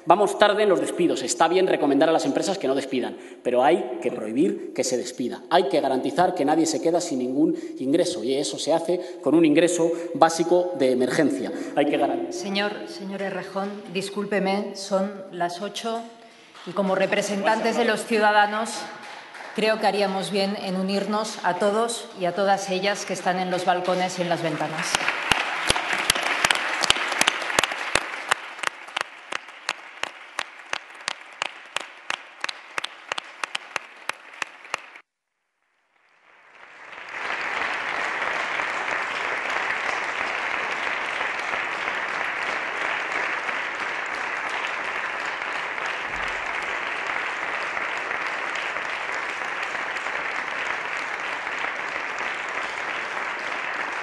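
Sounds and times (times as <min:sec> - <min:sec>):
people applauding: 0:16.4 - 0:21.1, 0:22.9 - 0:35.0, 0:35.9 - 0:54.0.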